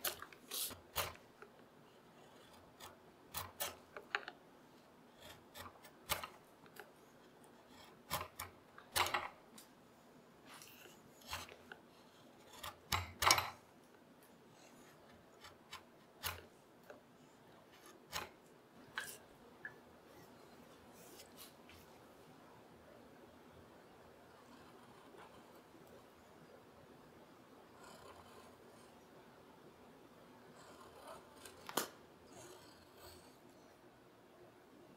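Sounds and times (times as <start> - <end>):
gouge scraping through wood: 2.0 - 4.1, 5.1 - 6.3.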